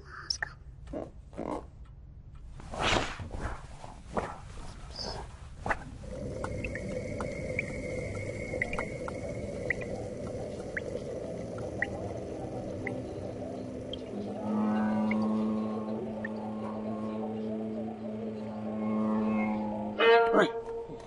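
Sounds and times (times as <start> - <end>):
steady watery noise: 5.8 - 18.0
low steady tone: 6.0 - 20.0
drip-like ticks: 6.2 - 14.2.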